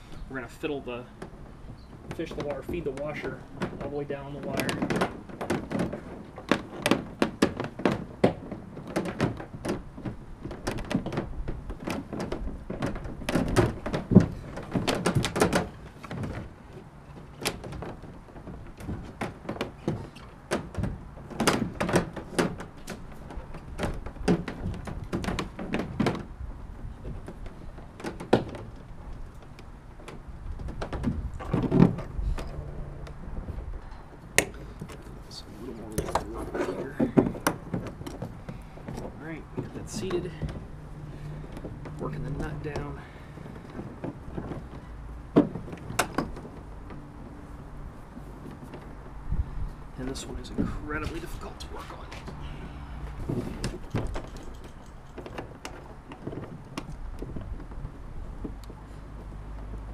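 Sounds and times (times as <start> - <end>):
cables knocking on plastic hull: 2.0 - 16.6.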